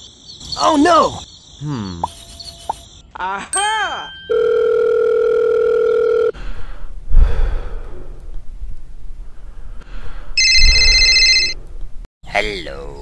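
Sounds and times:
electronic phone ringtone trilling: 0:03.6 - 0:06.4, 0:10.4 - 0:11.6
telephone dial tone: 0:04.3 - 0:06.4.

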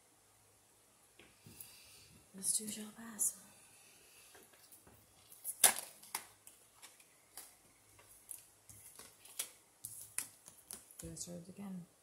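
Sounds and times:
cards clicking on a table: 0:08.3 - 0:11.2.

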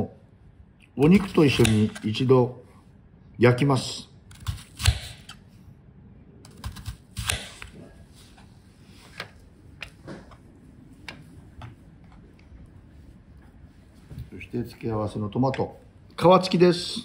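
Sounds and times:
knife slicing onion on cutting board: 0:06.6 - 0:07.9.

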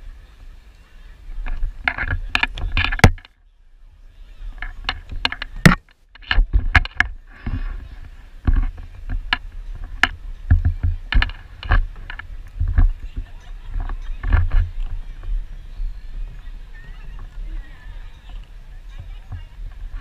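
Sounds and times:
wheels clacking over board joints: 0:01.4 - 0:03.3, 0:04.6 - 0:20.0
scooter wheels rolling on wood: 0:04.4 - 0:20.0.

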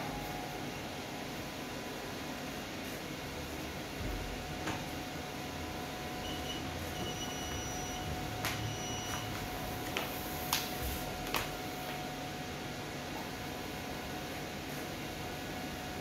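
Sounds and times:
faint constant tone: 0:00.0 - 0:09.7
room hum: 0:00.0 - 0:16.0.

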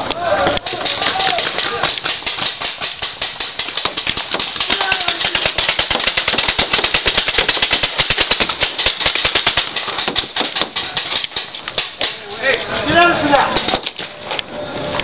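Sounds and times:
game guns popping: 0:00.6 - 0:12.4.

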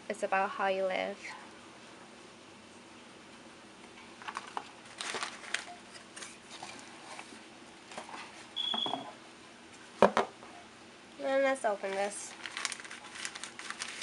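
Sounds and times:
tissue paper rustling: 0:04.2 - 0:07.4, 0:11.7 - 0:14.0.

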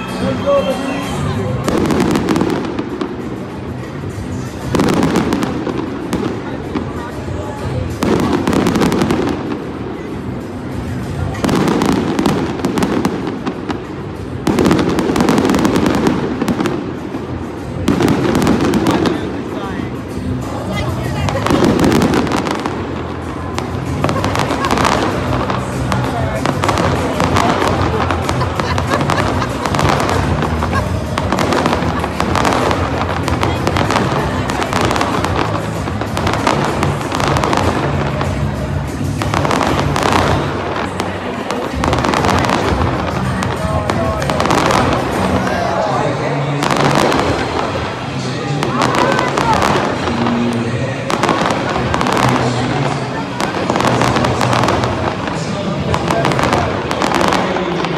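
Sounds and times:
fireworks cracking and banging: 0:00.0 - 0:57.9
music playing: 0:00.0 - 0:57.9
fireworks crackling pops: 0:21.1 - 0:45.6.

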